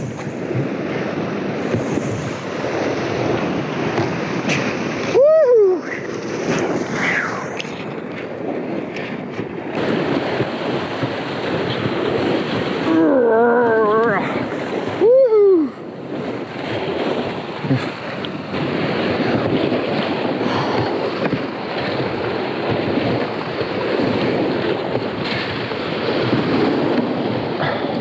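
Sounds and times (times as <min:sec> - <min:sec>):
whitewater rushing: 0:00.0 - 0:08.1, 0:09.7 - 0:28.0
paddle splashing: 0:00.0 - 0:28.0
wind buffeting microphone: 0:00.0 - 0:28.0
person calling out: 0:12.9 - 0:14.2, 0:15.0 - 0:15.7.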